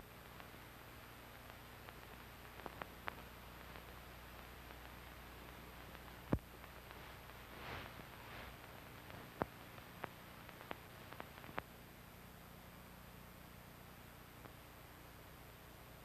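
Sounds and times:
recording hiss and hum: 0.0 - 16.0
clicks and pops: 1.4 - 11.7.

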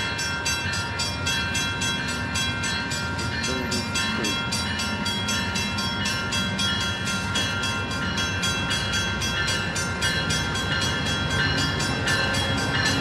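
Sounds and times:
passenger train approaching: 0.0 - 13.0
rapid bell ringing: 0.0 - 13.0.

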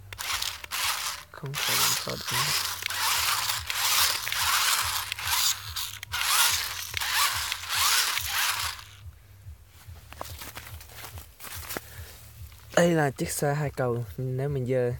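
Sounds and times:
toy truck motors buzzing: 0.0 - 9.0.

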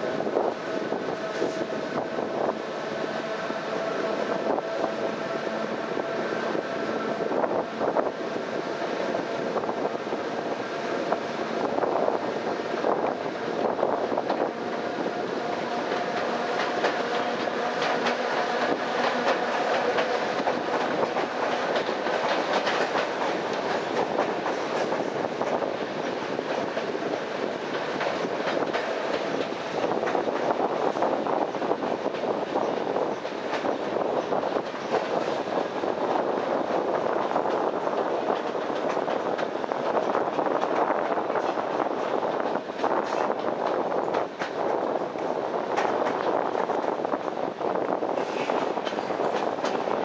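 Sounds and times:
train wheel and air rush: 0.0 - 50.0
wheels clacking over rail joints: 12.2 - 50.0.

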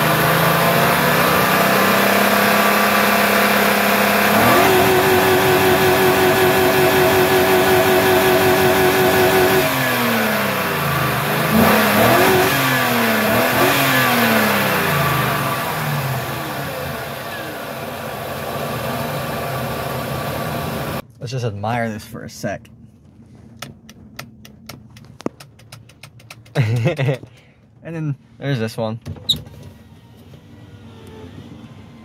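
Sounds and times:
truck engine revving: 0.0 - 17.9.

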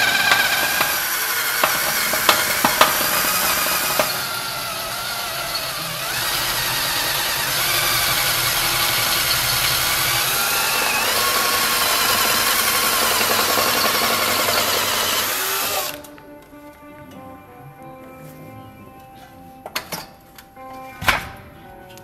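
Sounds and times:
cordless drill boring through metal: 0.0 - 16.1.

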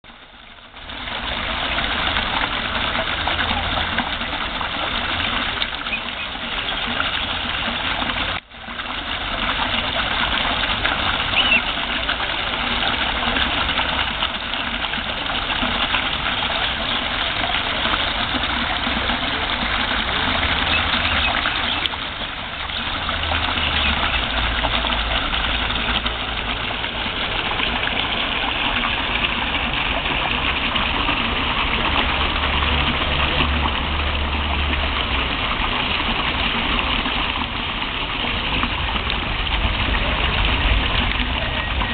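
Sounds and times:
water jet splashing into pond: 0.1 - 41.9.

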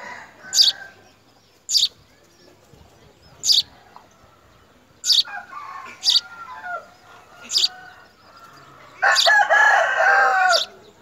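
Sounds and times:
sparrow chirping: 0.4 - 11.0
drawn-out bird call: 0.5 - 1.0, 1.7 - 2.0, 3.4 - 3.8, 5.0 - 11.0.

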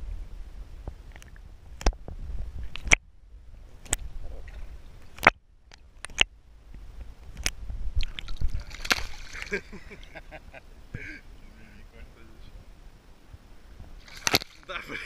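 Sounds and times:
low underwater rumble: 0.0 - 11.5
sharp underwater clicks and knocks: 0.8 - 3.0, 3.8 - 6.3, 7.2 - 9.5, 13.8 - 14.7.

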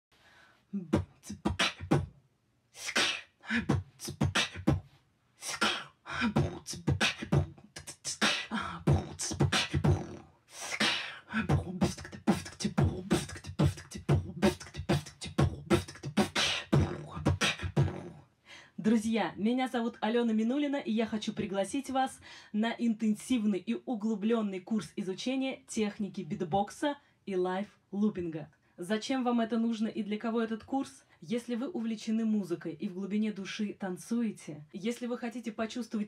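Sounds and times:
woman beatboxing into a microphone: 0.7 - 2.1, 2.8 - 4.8, 5.4 - 18.2, 21.0 - 22.2.

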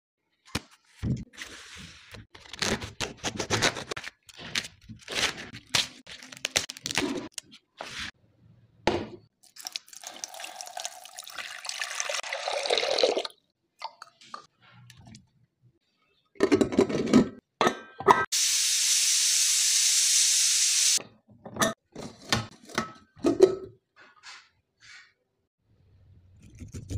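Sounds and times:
kitchen knocks and clatters: 8.8 - 9.3, 16.4 - 18.3, 21.0 - 24.5
water pouring into a pot: 9.4 - 13.4
pressure cooker vent hissing: 18.3 - 21.0.

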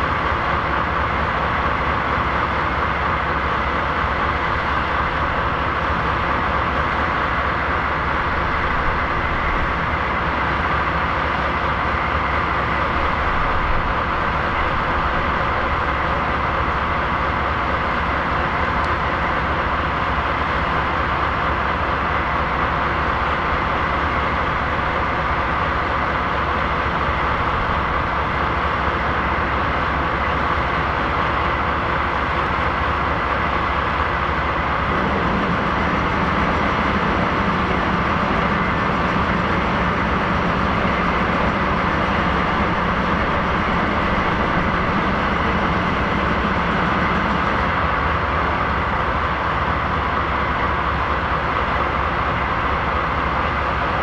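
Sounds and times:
diesel locomotive engines idling: 0.0 - 54.0
low hum: 34.8 - 49.1.

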